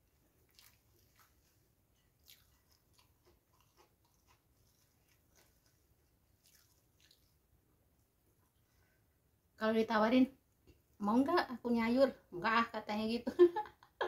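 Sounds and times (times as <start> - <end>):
soft chewing: 0.0 - 9.3.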